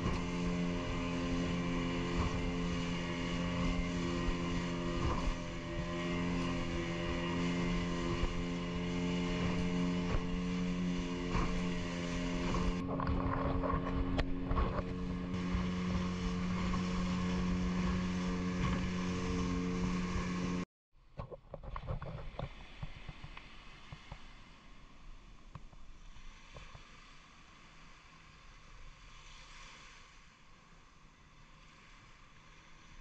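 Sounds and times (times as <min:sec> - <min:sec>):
water splashing against hull: 0:00.0 - 0:20.6
boat motor droning: 0:00.0 - 0:20.7.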